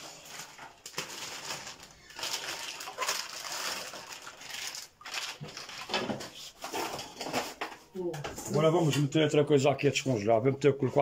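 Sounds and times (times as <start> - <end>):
water splashing in a tub: 2.1 - 6.0.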